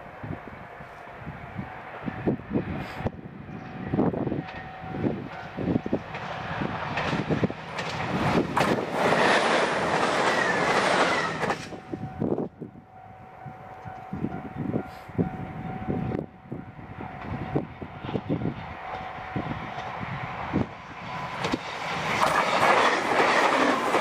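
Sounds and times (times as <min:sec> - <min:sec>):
passing train rush and whine: 0:00.0 - 0:24.0
train wheels clacking over rail joints: 0:05.3 - 0:11.8, 0:21.4 - 0:24.0.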